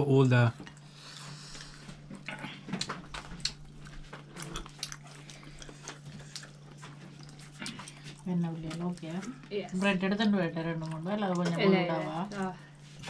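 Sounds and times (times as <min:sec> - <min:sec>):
steady low hum: 0:00.0 - 0:13.0
chewing smacks: 0:00.2 - 0:09.5, 0:10.7 - 0:13.0.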